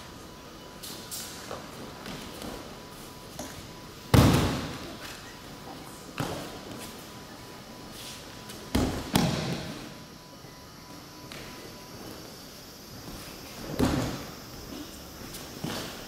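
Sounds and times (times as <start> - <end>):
bodies thudding on mats: 8.7 - 9.8, 13.6 - 14.4.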